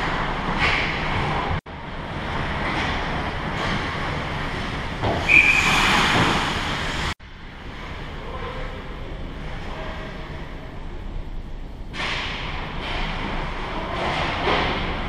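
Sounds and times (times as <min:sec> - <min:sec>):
ice skates on rink: 0:02.0 - 0:08.5
referee's whistle: 0:05.2 - 0:05.8.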